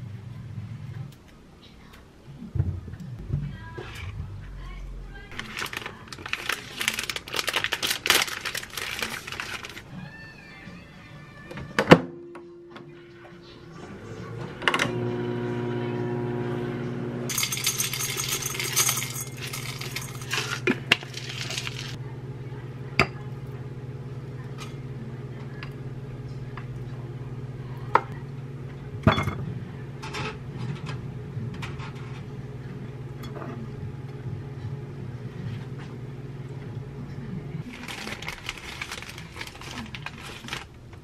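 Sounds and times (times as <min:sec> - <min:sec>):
low steady hum: 0:00.0 - 0:10.0, 0:12.2 - 0:41.0
crinkly rustling: 0:05.3 - 0:09.9, 0:17.6 - 0:22.0, 0:37.6 - 0:41.0
microwave oven humming: 0:12.2 - 0:41.0
utensils clinking against bowls: 0:17.3 - 0:22.0.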